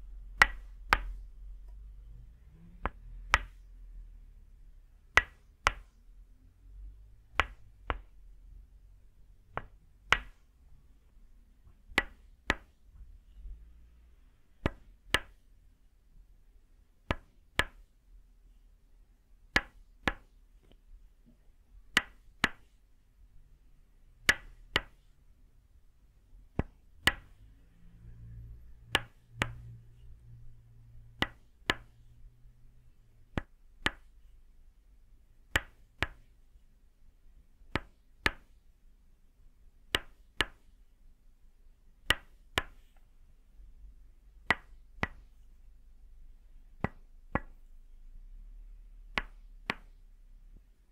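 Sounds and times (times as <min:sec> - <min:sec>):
wooden mallet striking wooden peg: 0:00.4 - 0:01.2.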